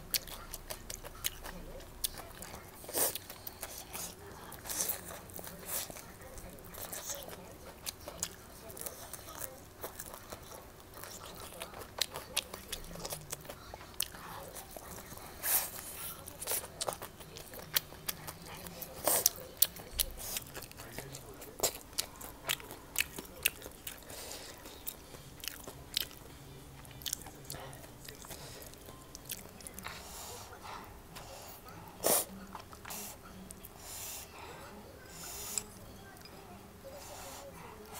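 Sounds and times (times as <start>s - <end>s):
person chewing and biting food: 6.7s - 30.0s.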